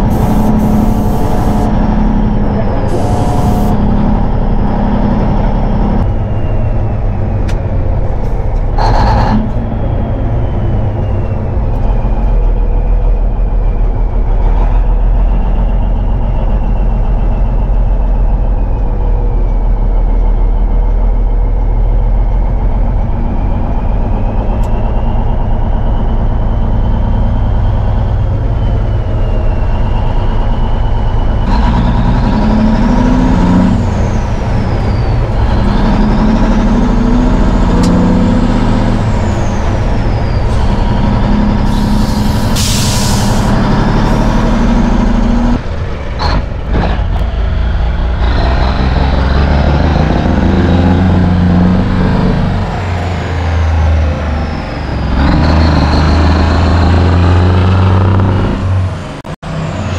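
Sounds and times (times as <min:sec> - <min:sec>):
whine drifting in pitch: 0:00.0 - 0:20.0
diesel engine drone: 0:00.0 - 0:59.9.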